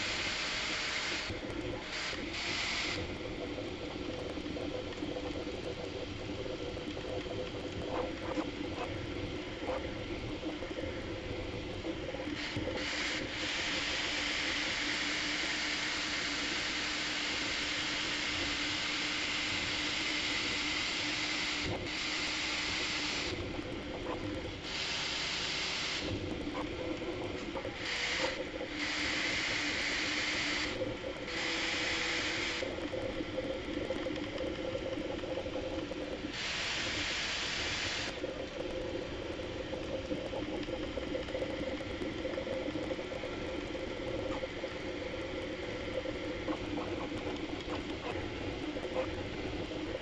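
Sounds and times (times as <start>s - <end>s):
printer hiss: 0.0s - 3.4s, 12.1s - 26.7s, 27.6s - 32.7s
motor hum: 0.0s - 50.0s.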